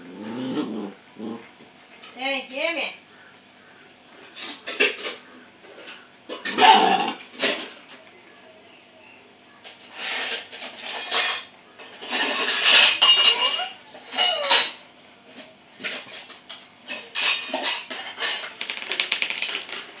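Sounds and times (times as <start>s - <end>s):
small hard objects clinking: 16.9s - 20.0s.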